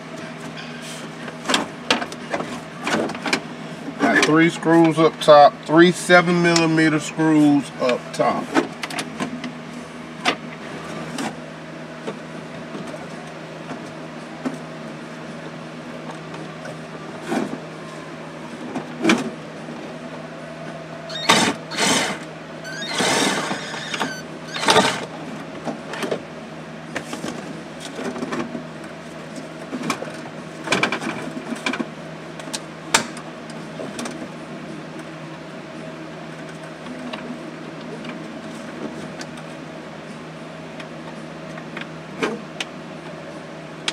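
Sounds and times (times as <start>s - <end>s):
steady hum: 0.0s - 43.9s
power tool bursts: 21.1s - 25.0s.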